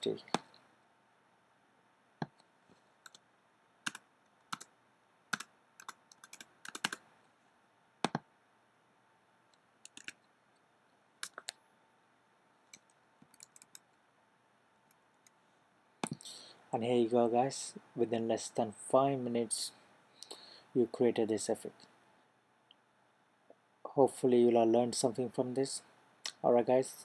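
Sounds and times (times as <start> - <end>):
keyboard and mouse clicks: 3.9 - 4.7, 5.3 - 7.0, 8.0 - 8.3, 9.8 - 10.3, 11.2 - 11.6, 12.7 - 14.0, 16.0 - 16.2.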